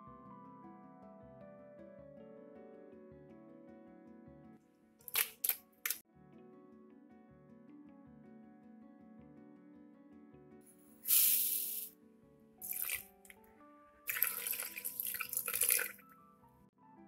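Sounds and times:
background music: 0.0 - 17.0
ingredients pouring into blender: 11.1 - 11.9, 14.1 - 16.0
water pouring: 12.6 - 13.3, 14.1 - 16.0
splash: 14.1 - 16.0.

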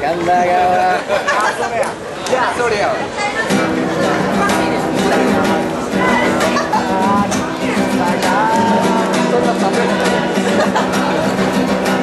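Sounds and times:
acoustic guitar chords: 3.4 - 12.0.

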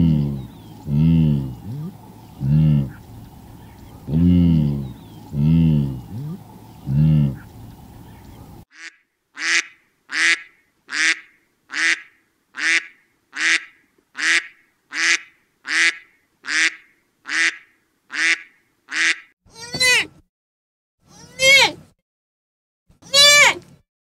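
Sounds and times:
wavering animal call: 0.0 - 8.5.

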